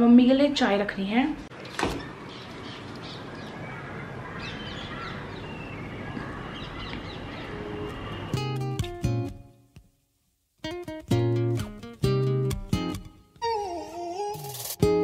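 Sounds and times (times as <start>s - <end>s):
birds calling: 1.6s - 8.7s
acoustic guitar strumming: 8.3s - 9.6s, 10.6s - 15.0s.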